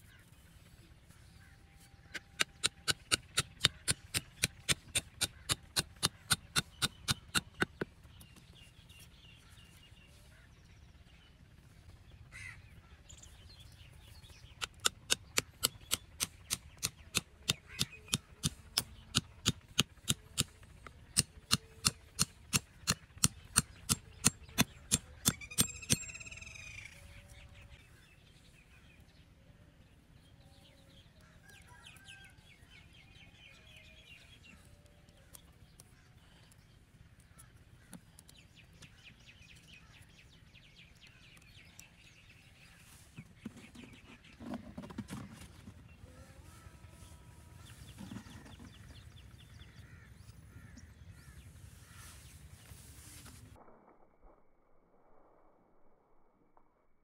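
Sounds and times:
hammer tapping wooden stakes: 0:02.1 - 0:07.9, 0:14.6 - 0:26.1.

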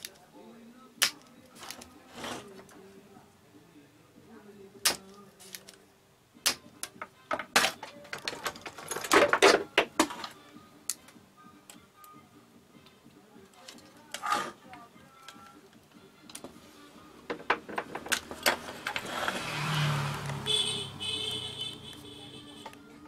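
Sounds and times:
clicks and rattles: 0:06.8 - 0:10.4, 0:17.3 - 0:19.1.

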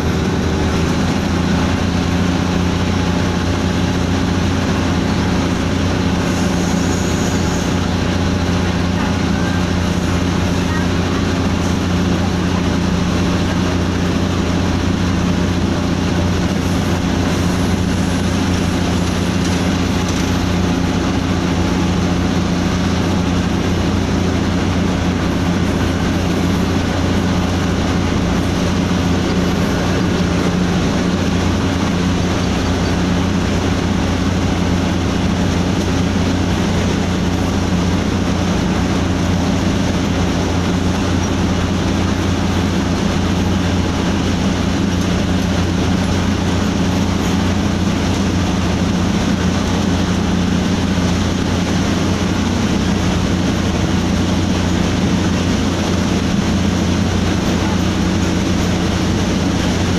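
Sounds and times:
locomotive engine drone: 0:00.0 - 0:59.9
train running noise: 0:00.0 - 0:59.9.

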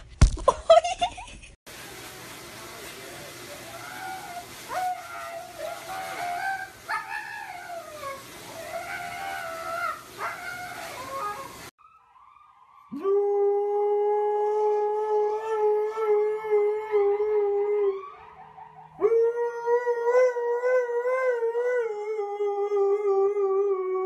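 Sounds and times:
dog howling: 0:03.7 - 0:11.7, 0:12.9 - 0:24.0.

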